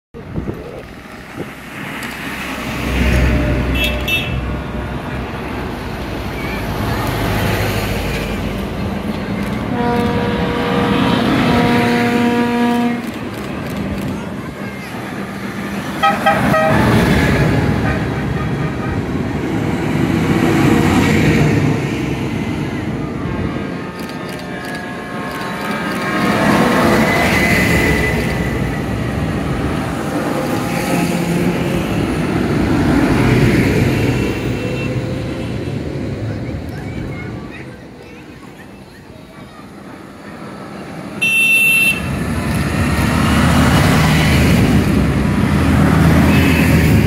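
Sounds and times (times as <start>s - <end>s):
horn tooting: 9.7s - 13.1s, 16.0s - 19.1s, 41.2s - 42.2s.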